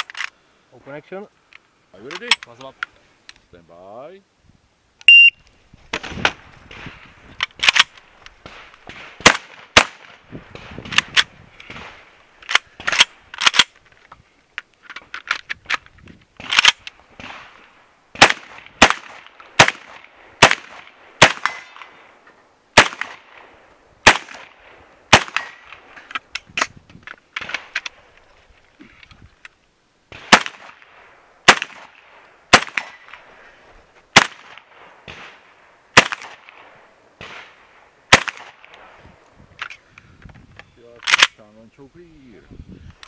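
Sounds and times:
shotgun firing: 0:07.6 - 0:12.1, 0:18.2 - 0:21.9, 0:22.8 - 0:25.8, 0:30.1 - 0:33.2, 0:34.2 - 0:35.4, 0:36.0 - 0:38.7.

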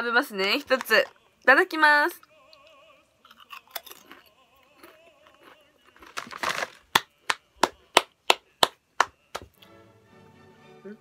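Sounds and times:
crunchy potato chip bite: 0:03.3 - 0:07.4
hand claps: 0:06.9 - 0:09.6.

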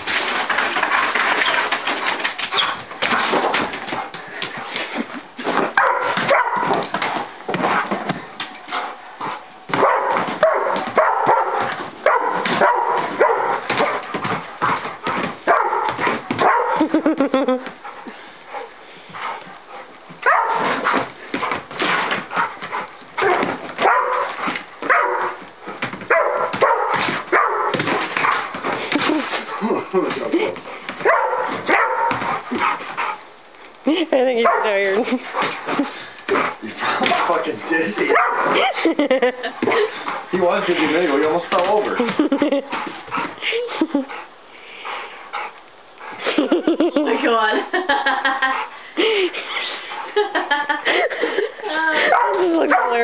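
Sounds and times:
paws scrabbling on floor: 0:00.0 - 0:33.8, 0:34.4 - 0:47.4
dog barking and whining: 0:05.8 - 0:07.9, 0:08.5 - 0:17.0, 0:18.6 - 0:21.6, 0:22.2 - 0:28.5, 0:31.0 - 0:33.2, 0:34.4 - 0:37.4, 0:38.0 - 0:38.8, 0:52.0 - 0:53.0.

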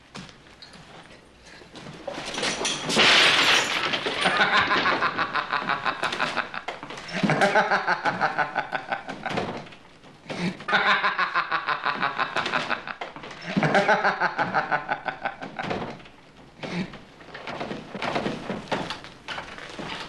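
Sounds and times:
glass bottle smashing: 0:02.3 - 0:05.0
man laughing loudly: 0:04.2 - 0:09.4, 0:10.6 - 0:15.8.

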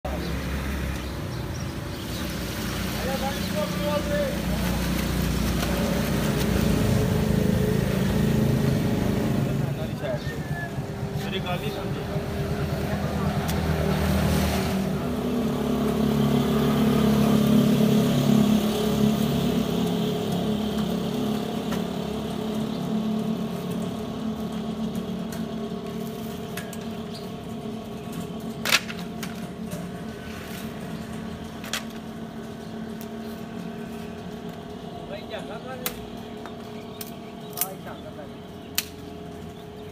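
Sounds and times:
vehicle engine running: 0:00.1 - 0:39.9.

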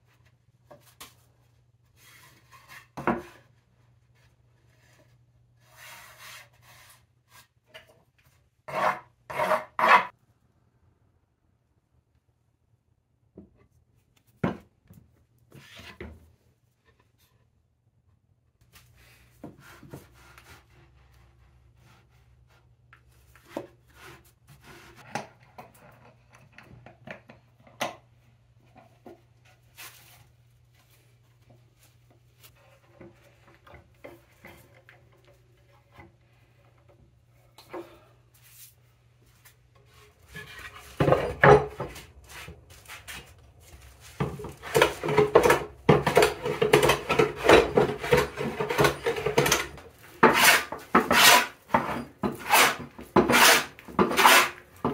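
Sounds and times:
hand plane cutting wood: 0:08.7 - 0:10.1, 0:44.5 - 0:54.9.

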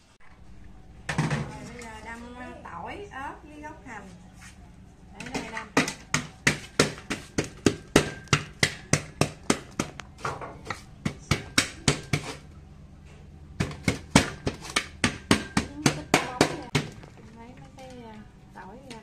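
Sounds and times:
wooden pestle pounding in metal pot: 0:05.3 - 0:12.4, 0:13.6 - 0:17.1.

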